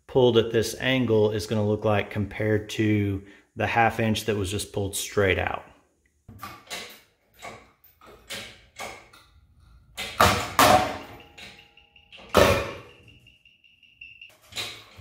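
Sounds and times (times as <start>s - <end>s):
short metallic ring: 10.7s - 15.0s.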